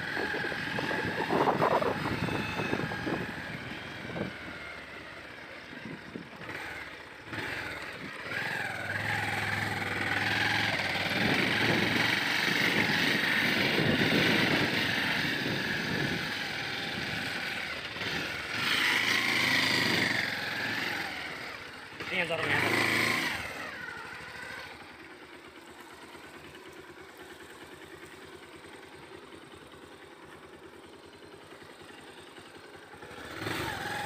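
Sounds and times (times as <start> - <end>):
wind noise on microphone: 0.0 - 4.3, 11.0 - 17.2
motorcycle engine running: 0.0 - 34.0.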